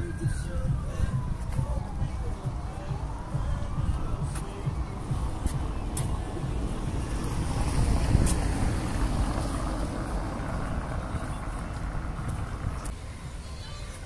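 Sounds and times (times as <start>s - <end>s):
car driving past: 4.8s - 12.9s.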